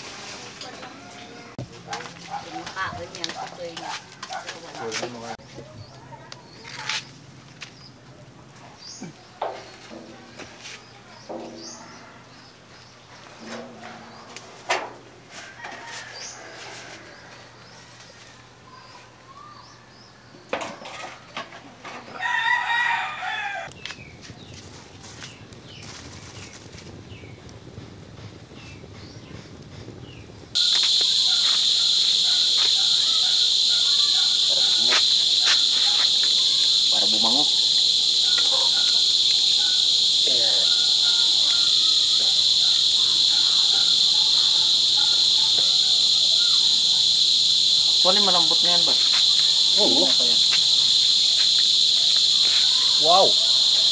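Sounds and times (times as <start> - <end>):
small birds chirping: 5.4 - 9.9, 28.5 - 53.9
rooster crowing: 15.3 - 18.6, 22.1 - 23.7, 30.6 - 53.9
insect chorus buzzing: 30.0 - 53.9
distant voice: 30.6 - 53.9.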